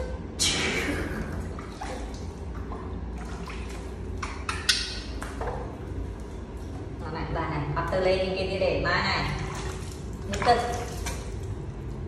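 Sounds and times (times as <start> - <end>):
water splashing in a plastic basin: 0.5 - 6.3, 9.2 - 12.0.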